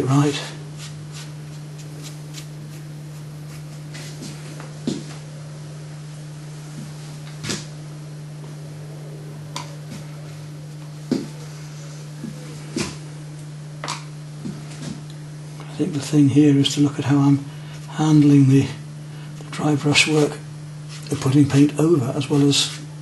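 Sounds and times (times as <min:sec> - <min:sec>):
steady low hum: 0:00.0 - 0:23.0.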